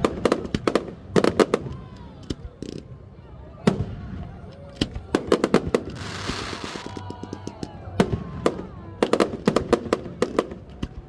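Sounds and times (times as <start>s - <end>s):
fireworks bangs: 3.6s - 11.0s
firework crackling: 4.8s - 11.0s
firework hissing burst: 5.8s - 6.9s.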